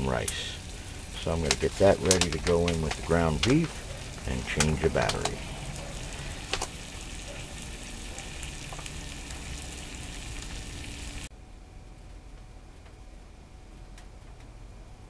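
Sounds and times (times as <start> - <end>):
meat sizzling in a pan: 0.0 - 11.3.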